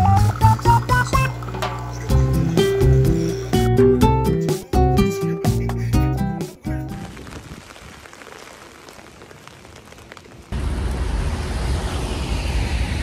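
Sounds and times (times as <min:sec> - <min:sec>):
rain on an umbrella: 0:06.6 - 0:11.5
deep rumble: 0:10.5 - 0:13.0.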